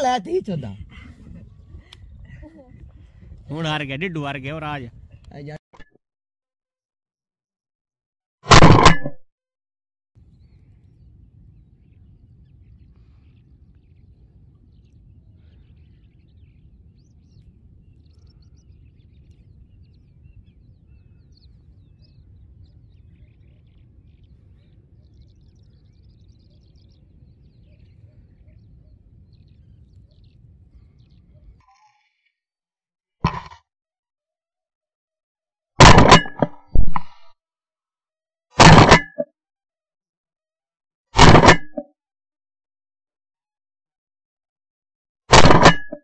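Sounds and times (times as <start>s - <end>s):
birds chirping and calling: 10.3s - 32.3s.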